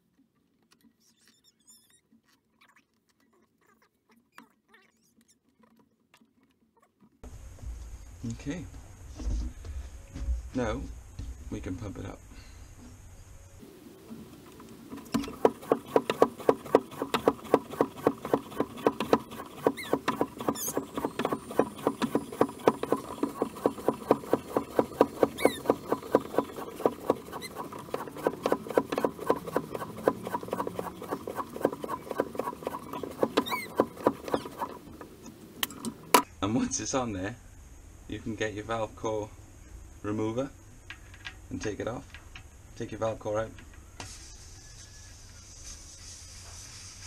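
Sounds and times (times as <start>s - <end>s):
bicycle pump strokes: 0.0s - 7.2s, 14.0s - 36.2s.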